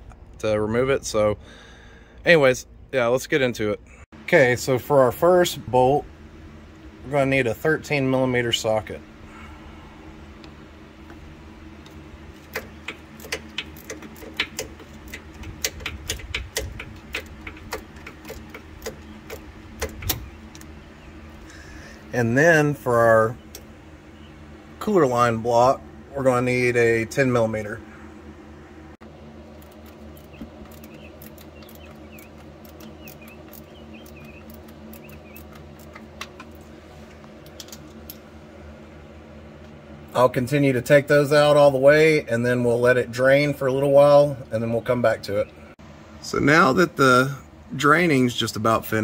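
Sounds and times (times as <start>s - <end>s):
steady low hum: 0.0s - 49.0s
socket ratchet clicking: 12.5s - 20.7s.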